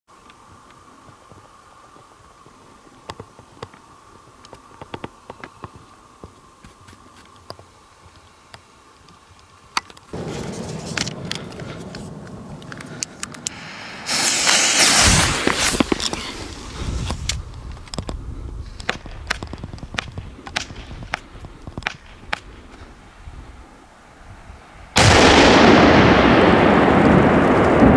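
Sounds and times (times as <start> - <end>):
firecracker fuse sputtering: 10.1 - 17.5
loud firecracker blast: 10.2 - 16.0, 24.9 - 27.9
torch lighter hissing: 11.8 - 17.4.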